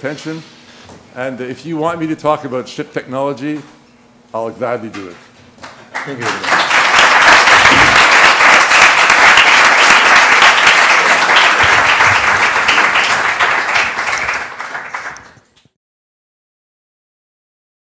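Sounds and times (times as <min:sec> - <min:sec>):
audience applauding: 0:05.6 - 0:15.4.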